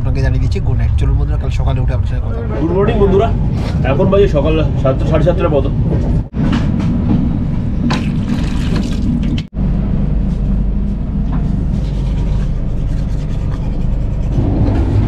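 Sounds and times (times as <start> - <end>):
train rumble: 0.0 - 15.0
tap water running into basin: 7.9 - 9.4.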